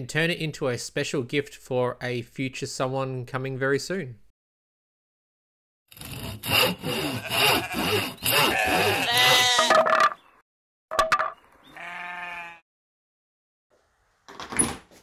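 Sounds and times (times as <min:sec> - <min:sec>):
hand saw cutting wood: 0:05.9 - 0:09.6
sheep bleating: 0:07.2 - 0:09.7, 0:11.7 - 0:12.6.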